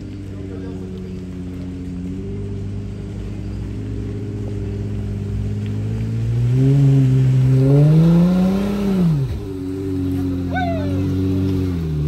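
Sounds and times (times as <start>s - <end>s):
engine idling: 0.0s - 6.4s
engine revving: 0.0s - 12.0s.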